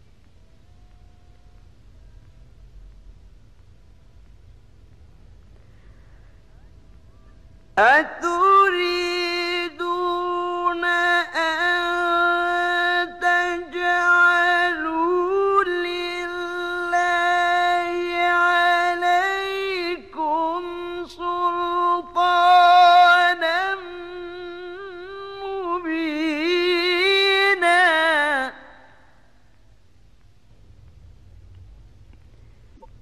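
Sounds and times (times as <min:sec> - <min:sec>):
man chanting a recitation: 0:07.8 - 0:28.8.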